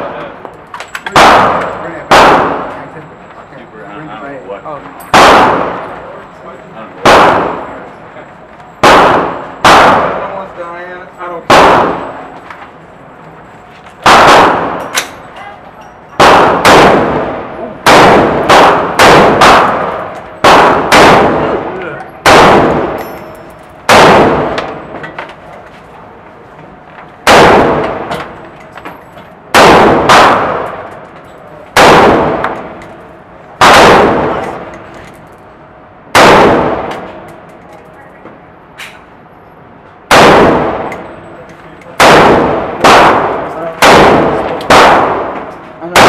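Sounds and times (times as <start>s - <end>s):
rifle shots echoing indoors: 1.1s - 3.0s, 5.1s - 6.0s, 7.0s - 7.9s, 8.8s - 10.6s, 11.4s - 12.6s, 14.0s - 15.2s, 16.2s - 23.0s, 23.8s - 25.0s, 27.2s - 28.4s, 29.5s - 31.0s, 31.7s - 32.8s, 33.6s - 34.8s, 36.1s - 37.3s, 40.1s - 41.2s, 42.0s - 46.0s.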